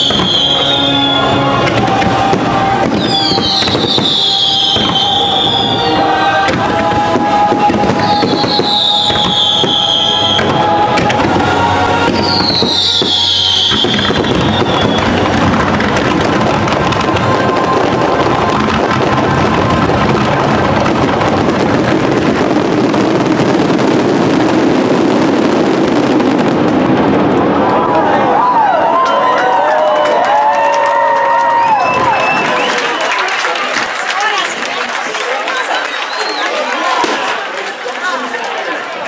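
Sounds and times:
show music: 0.0 - 22.4
fireworks whistling: 0.0 - 27.4, 31.6 - 33.3, 35.7 - 37.3
fireworks bursts and crackling: 0.0 - 28.5, 29.5 - 39.0.

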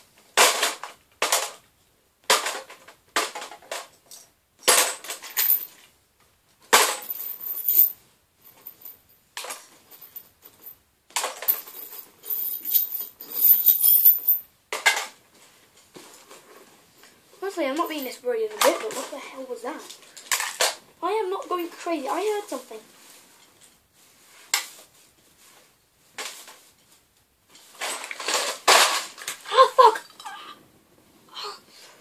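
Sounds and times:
small hard objects clattering: 27.7 - 29.4.

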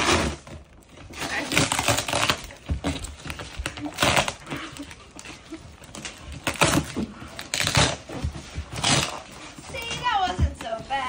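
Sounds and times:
wrapping paper rustling: 0.0 - 11.0
tape being ripped off: 1.3 - 2.5, 3.8 - 4.4, 6.4 - 9.3.

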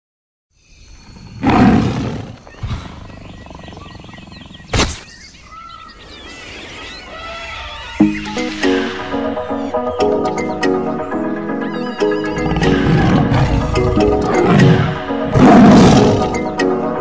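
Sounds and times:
birds chirping: 0.5 - 17.0
loud animal roar: 1.3 - 4.7, 12.0 - 16.5.

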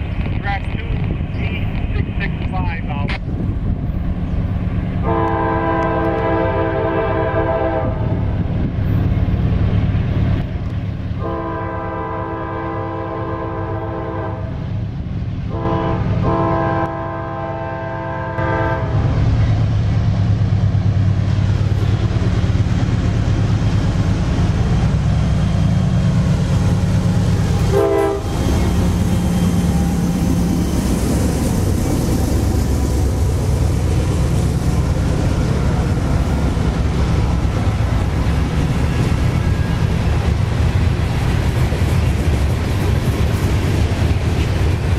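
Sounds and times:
locomotive engines rumbling past: 0.0 - 44.9
locomotive air horn blasts: 5.0 - 8.0, 11.2 - 14.5, 15.5 - 19.0, 27.7 - 28.3.

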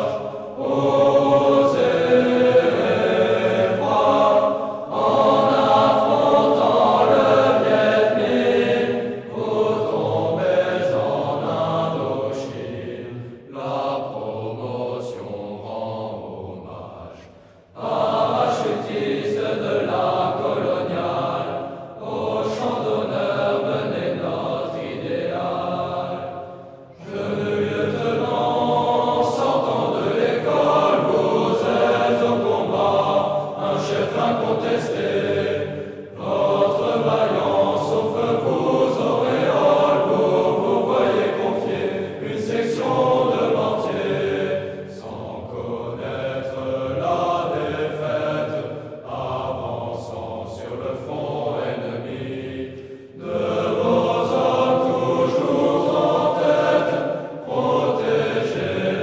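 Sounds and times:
choir singing: 0.0 - 59.0.

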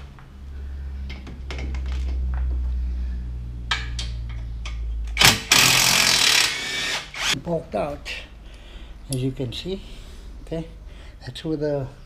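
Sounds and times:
steady low hum: 0.0 - 5.9.

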